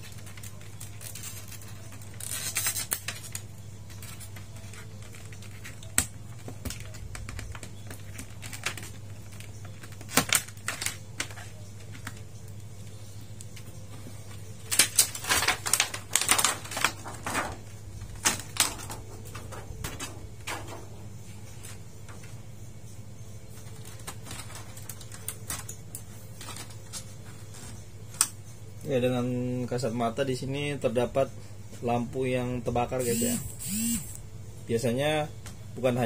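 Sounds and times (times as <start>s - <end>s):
plastic parts clicking and tapping: 0.0s - 13.7s
steady low hum: 0.0s - 36.0s.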